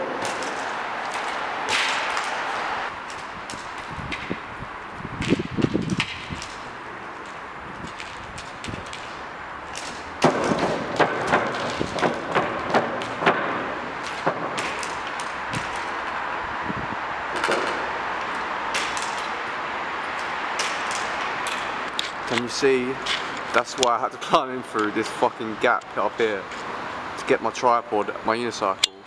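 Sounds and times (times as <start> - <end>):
unicycle rolling with clicks: 0.0 - 16.4, 17.3 - 23.9
unicycle hopping on concrete: 0.0 - 24.1.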